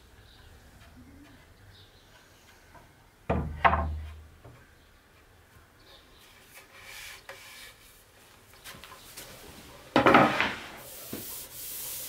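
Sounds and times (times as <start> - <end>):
wooden boards knocking: 3.3 - 4.6, 10.0 - 10.6.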